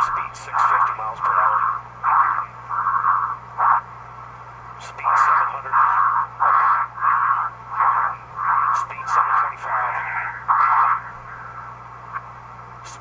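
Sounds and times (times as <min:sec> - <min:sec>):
muffled radio voice: 0:00.0 - 0:03.8, 0:04.8 - 0:11.4
steady low hum: 0:00.0 - 0:13.0
radio crackling clicks: 0:04.8 - 0:12.3.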